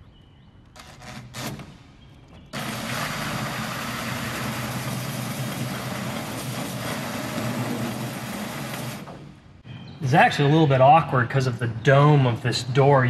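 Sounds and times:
cordless drill cutting plastic: 0:02.6 - 0:09.2.

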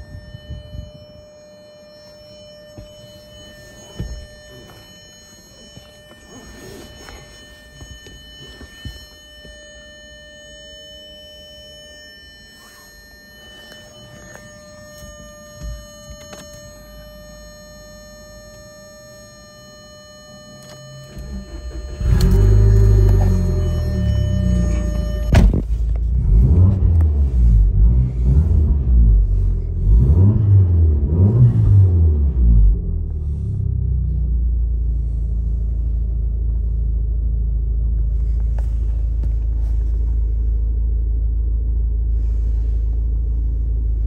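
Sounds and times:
steady high-pitched tone: 0:00.0 - 0:25.6
car engine cranking and starting: 0:20.7 - 0:44.0.

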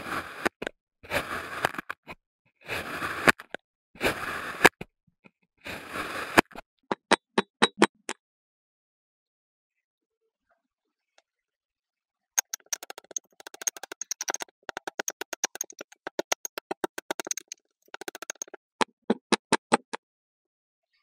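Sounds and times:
kinetic sand crunchy clicks: 0:12.4 - 0:19.9.

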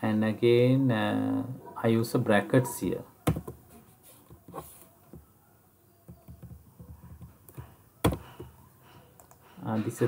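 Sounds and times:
computer keyboard and mouse clicks: 0:09.2 - 0:09.4.

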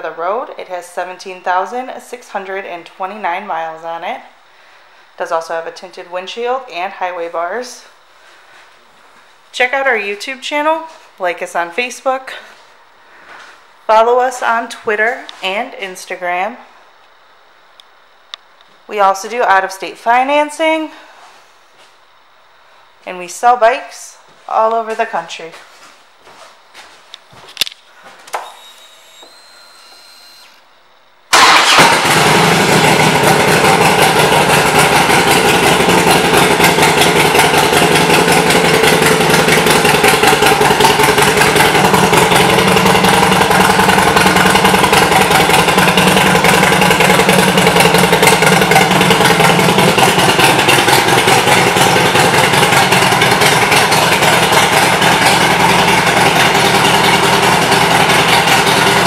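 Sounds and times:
motorcycle engine starting and idling: 0:28.3 - 0:30.6, 0:31.3 - 0:59.0.

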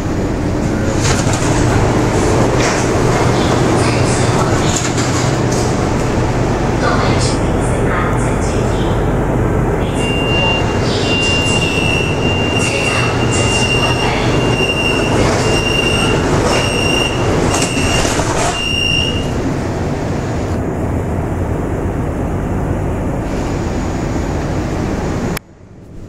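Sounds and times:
subway train running: 0:00.0 - 0:26.0
door-closing warning beeps: 0:09.8 - 0:19.4.

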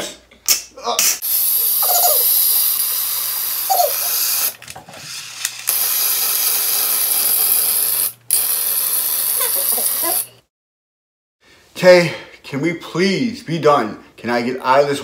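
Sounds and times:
aerosol spray hissing: 0:01.2 - 0:04.5, 0:05.7 - 0:10.3.

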